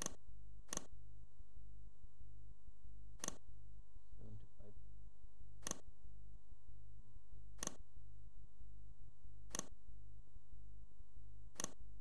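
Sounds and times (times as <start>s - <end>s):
computer mouse clicking: 0.0s - 0.9s, 3.2s - 3.4s, 5.6s - 5.8s, 7.6s - 7.8s, 9.5s - 9.8s, 11.6s - 11.8s
steady low hum: 0.0s - 12.0s.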